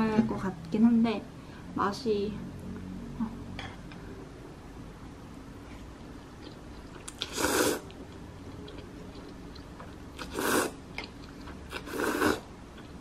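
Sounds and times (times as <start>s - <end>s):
person slurping noodles: 7.2s - 7.8s, 10.2s - 10.8s, 11.7s - 12.5s.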